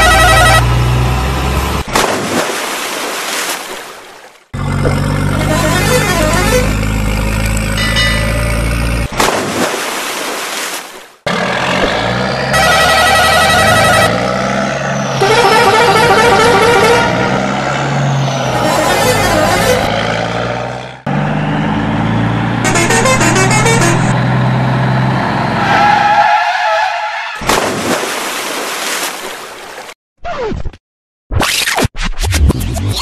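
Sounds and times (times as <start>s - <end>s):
truck horn blasts: 0.0s - 1.2s, 5.1s - 8.8s, 12.0s - 17.6s, 18.5s - 21.2s, 22.6s - 24.4s
truck engine running: 0.0s - 2.0s, 4.5s - 9.3s, 11.3s - 25.8s
short noisy splash: 1.9s - 4.3s, 9.1s - 11.0s, 27.4s - 30.0s.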